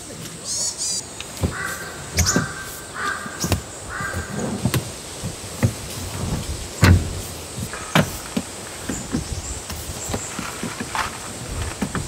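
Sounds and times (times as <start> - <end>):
sharp knocks of seats: 1.3 - 12.0
crow cawing: 1.4 - 4.4.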